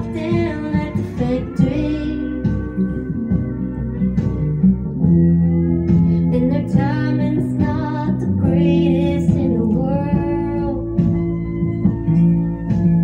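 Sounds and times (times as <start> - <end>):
country music from a record: 0.0 - 13.0.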